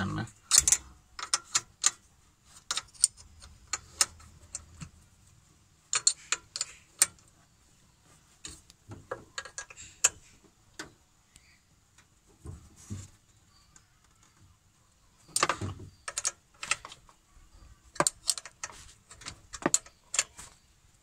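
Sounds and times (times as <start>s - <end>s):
spanner clicking on metal: 0.5s - 2.0s, 5.9s - 7.2s, 15.3s - 17.0s, 17.9s - 20.4s.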